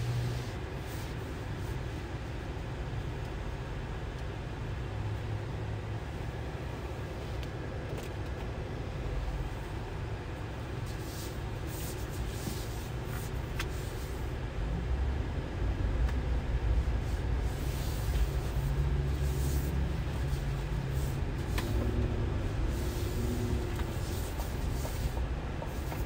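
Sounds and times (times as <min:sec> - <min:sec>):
car engine idling: 0:08.3 - 0:26.0.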